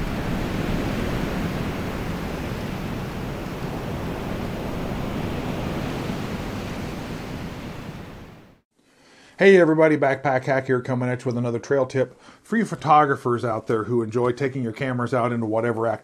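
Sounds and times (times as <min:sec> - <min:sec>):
steady rushing noise: 0:00.0 - 0:08.0.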